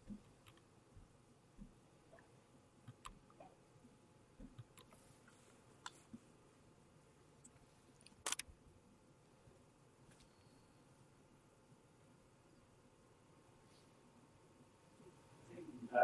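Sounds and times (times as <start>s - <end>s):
faint clicks and knocks: 4.3s - 6.3s.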